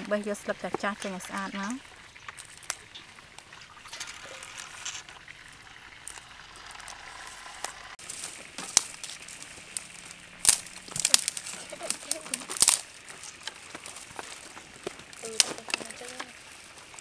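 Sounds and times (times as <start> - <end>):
stems snapping and rustling: 0.0 - 5.1, 6.0 - 17.0.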